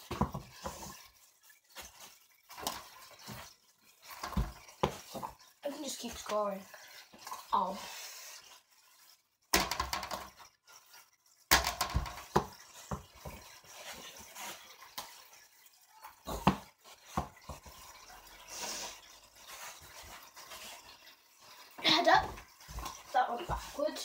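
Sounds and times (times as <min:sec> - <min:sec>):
ball knocking on hard surfaces: 0:11.5 - 0:13.4, 0:16.3 - 0:17.4.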